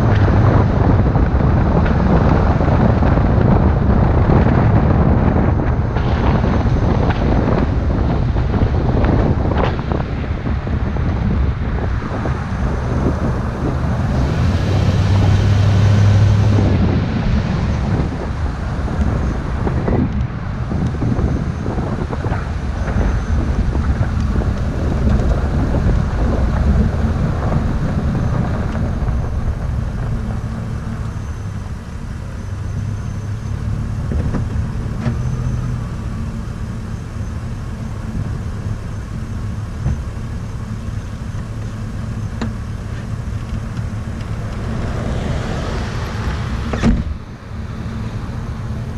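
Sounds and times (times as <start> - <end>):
truck engine and road rumble: 0.0 - 48.9
wind rushing over microphone: 0.0 - 48.9
vehicle passing: 12.3 - 22.2, 44.0 - 48.9.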